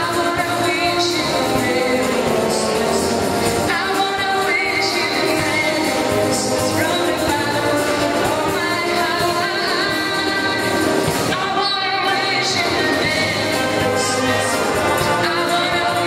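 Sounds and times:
wind orchestra playing: 0.0 - 16.0
woman singing into microphone: 0.0 - 16.0
choir singing: 12.3 - 16.0.

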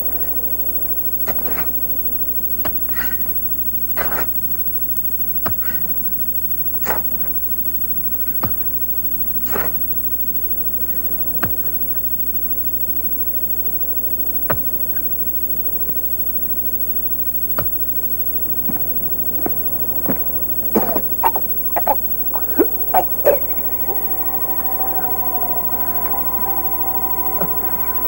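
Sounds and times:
tape hiss: 0.0 - 28.0
person coughing harshly: 19.9 - 28.0.

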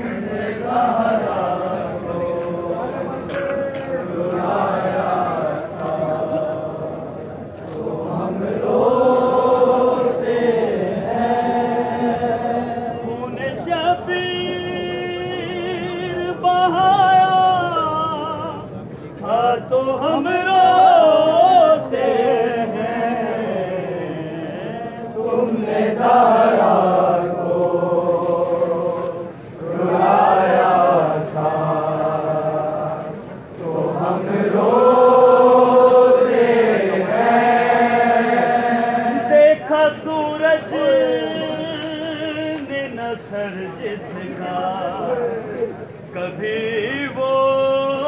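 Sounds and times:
men chanting a lament: 0.0 - 48.0.

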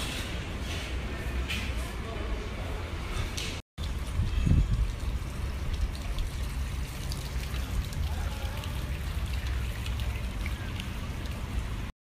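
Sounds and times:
fountain water trickling: 3.8 - 11.9.

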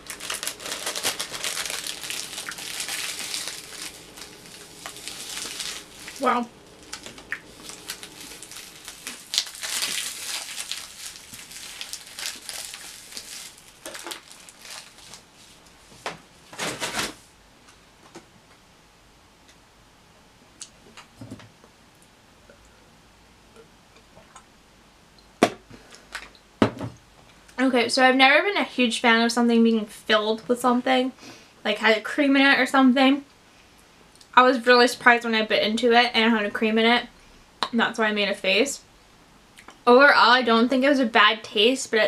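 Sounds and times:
wrapper rustling and crackling: 0.0 - 17.2.

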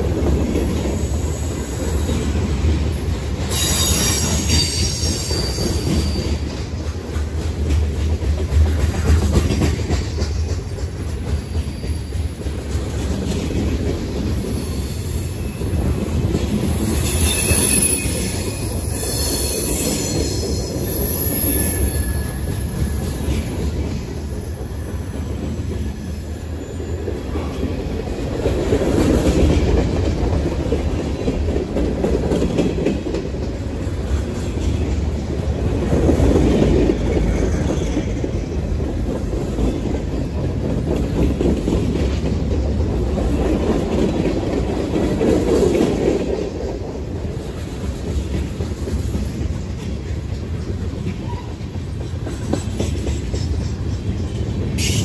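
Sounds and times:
train wheels rumbling on rails: 0.0 - 55.0
high-pitched wheel squeal: 3.5 - 6.4, 16.7 - 23.3.

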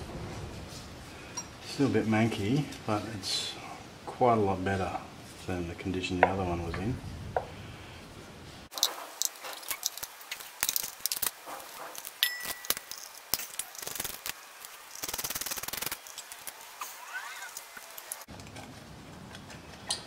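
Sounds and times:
hand tools clinking on metal: 12.1 - 13.5.

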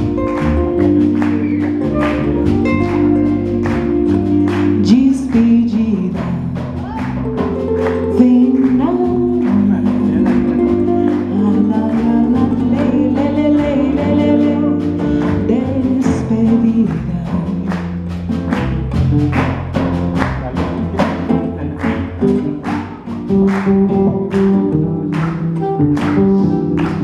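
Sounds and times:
acoustic guitar: 0.0 - 27.0
electric bass: 0.0 - 27.0
hand percussion beat: 0.0 - 27.0
woman singing: 4.2 - 18.0.

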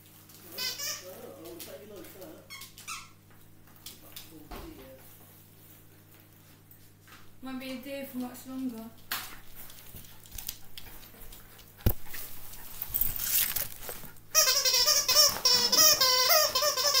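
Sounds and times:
rustling: 9.3 - 16.1.

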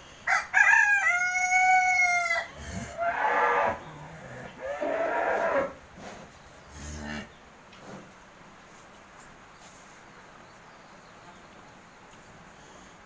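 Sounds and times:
rooster crowing: 0.2 - 3.8.

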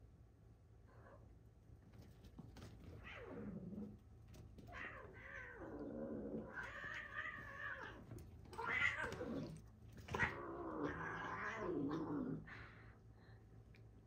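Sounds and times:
cats yowling: 4.7 - 12.4.

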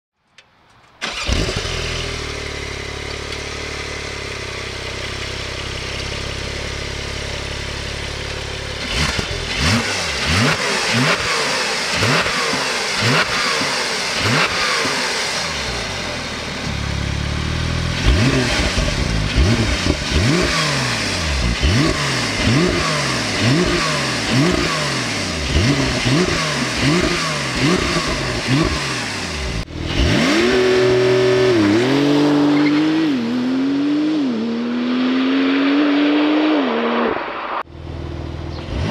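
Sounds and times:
car engine starting and idling: 0.4 - 33.5, 37.4 - 38.9
engine revving in blips: 8.8 - 16.0, 17.4 - 37.7, 38.4 - 38.9.

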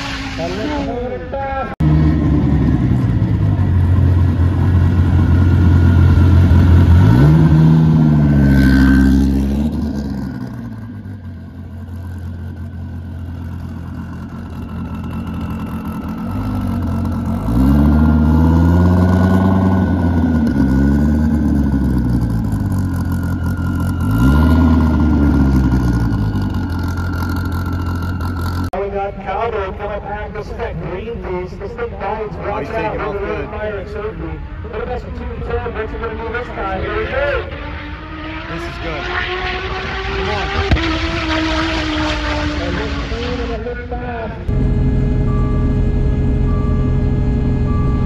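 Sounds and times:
sports car engine revving: 1.8 - 28.7, 37.4 - 43.6, 44.5 - 48.0.

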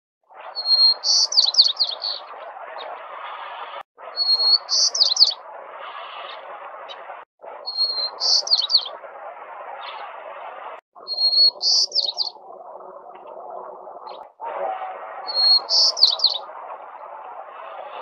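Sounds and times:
sparrow singing: 0.4 - 3.1, 4.1 - 5.4, 6.2 - 9.0, 11.0 - 12.4, 15.2 - 18.0.

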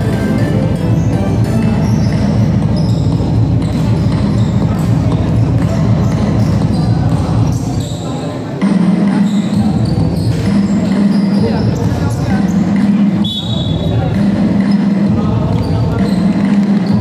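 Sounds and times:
crowd voices: 0.0 - 17.0
basketball bouncing on court: 0.7 - 17.0
short high squeaks: 7.6 - 8.3.

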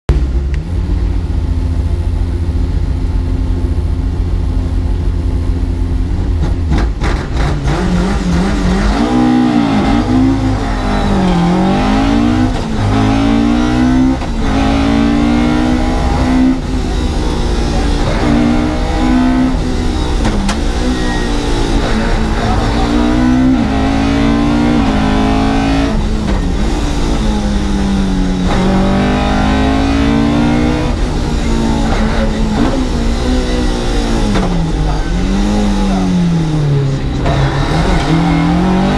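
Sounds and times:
rally car engine revving: 0.1 - 38.9.

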